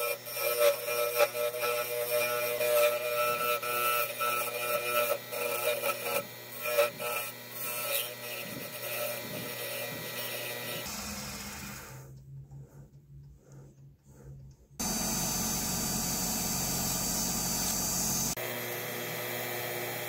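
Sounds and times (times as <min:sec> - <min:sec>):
chisel scraping wood: 0:00.0 - 0:11.5
wood lathe humming: 0:00.0 - 0:20.0.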